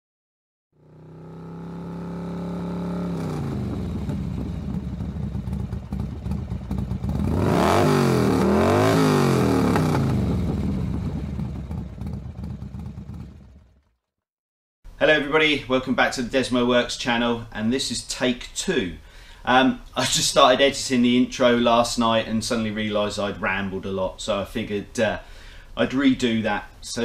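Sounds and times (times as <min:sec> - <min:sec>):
motorcycle engine revving: 0:00.8 - 0:14.1.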